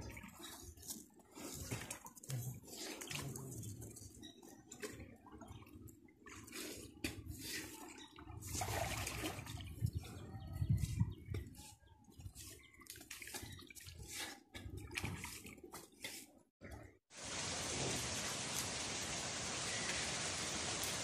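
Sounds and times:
pond water splashing: 4.7s - 9.8s, 12.2s - 16.2s, 17.1s - 21.0s.

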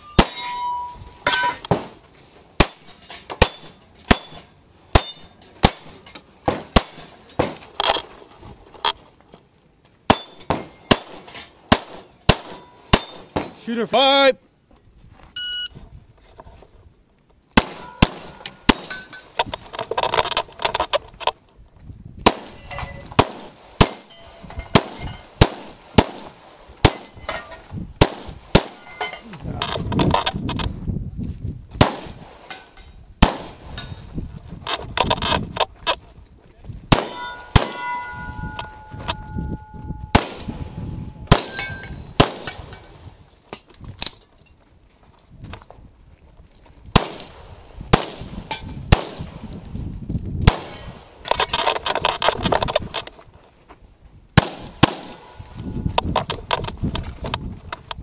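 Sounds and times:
steel targets clanging: 0.0s - 7.6s, 10.1s - 13.8s, 17.7s - 19.4s, 26.8s - 27.8s, 28.5s - 29.7s, 36.9s - 43.0s
pistol shots: 23.2s - 24.1s, 33.2s - 33.6s, 36.9s - 38.0s, 40.1s - 40.6s, 41.2s - 42.7s, 46.9s - 48.3s, 50.4s - 51.0s, 54.4s - 55.4s.

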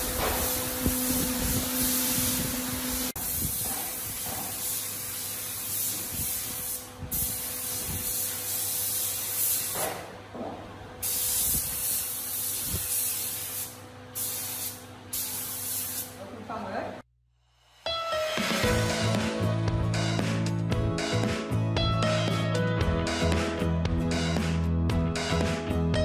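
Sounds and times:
spray gun hissing: 0.0s - 10.0s, 11.0s - 16.2s.

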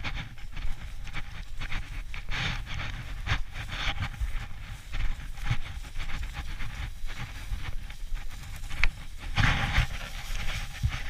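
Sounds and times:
footsteps through dry grass: 0.0s - 11.0s
low microphone rumble: 0.0s - 11.0s.

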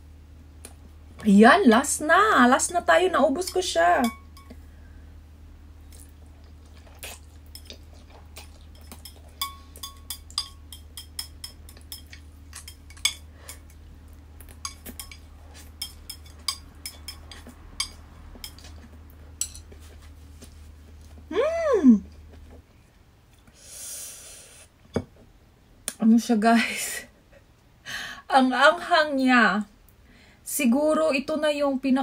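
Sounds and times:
faint low hum: 0.0s - 32.0s
chopsticks clinking against a bowl: 8.4s - 13.7s, 14.5s - 18.8s, 19.4s - 19.8s.

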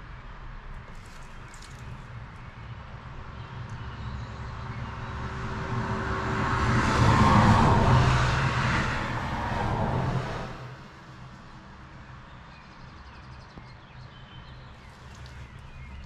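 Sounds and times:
vehicle passing by: 3.9s - 11.2s.

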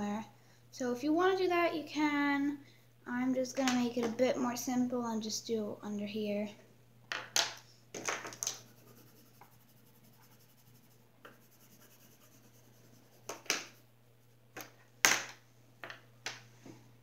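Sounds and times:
pencil scratching on paper: 8.5s - 13.8s.

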